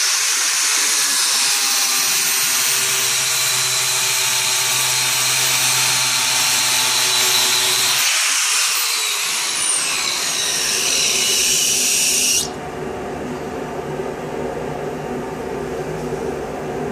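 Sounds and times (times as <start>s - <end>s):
angle grinder grinding steel: 0.0s - 12.6s
steady machine hum: 9.0s - 16.9s.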